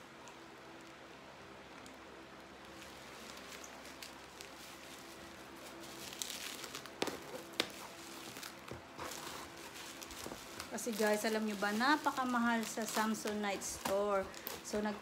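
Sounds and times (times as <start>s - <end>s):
bubble wrap crinkling: 2.5s - 15.0s.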